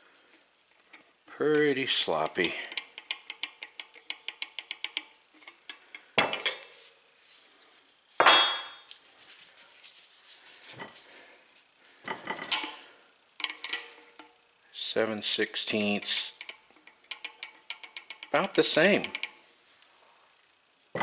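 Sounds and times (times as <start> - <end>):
wrenches clinking: 16.4 - 19.3.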